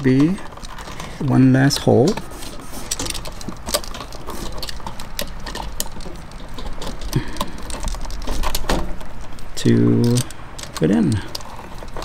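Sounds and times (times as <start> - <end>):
wire and plastic clicks: 2.8 - 12.0.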